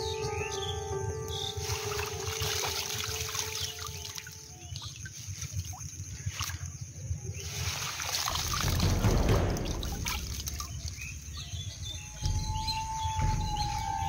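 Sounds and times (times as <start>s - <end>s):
water splashing and trickling: 1.1s - 14.0s.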